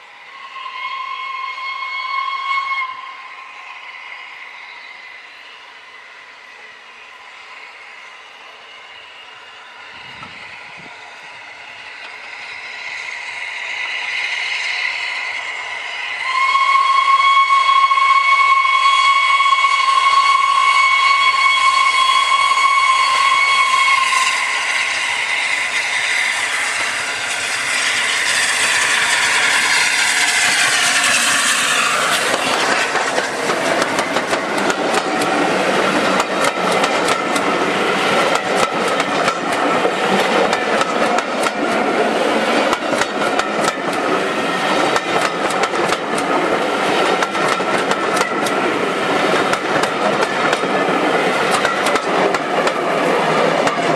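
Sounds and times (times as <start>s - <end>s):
steam locomotive whistle: 0.0s - 5.4s, 8.1s - 53.9s
steam locomotive exhaust: 0.0s - 53.9s
coaches clattering over rail joints: 47.0s - 53.9s.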